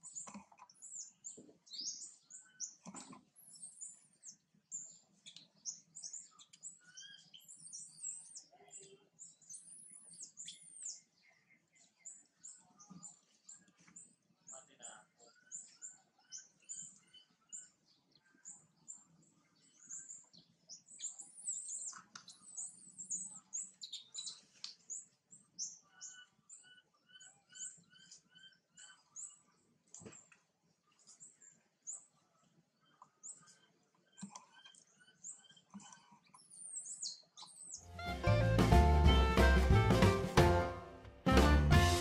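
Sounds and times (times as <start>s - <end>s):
small birds chirping: 0.0s - 38.7s
music: 37.8s - 42.0s.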